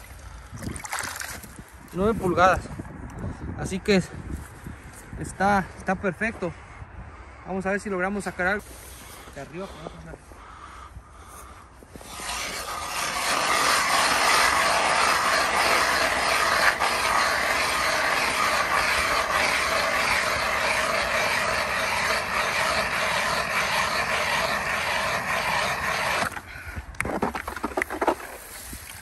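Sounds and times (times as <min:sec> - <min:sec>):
ice auger grinding through ice: 0:11.9 - 0:29.0.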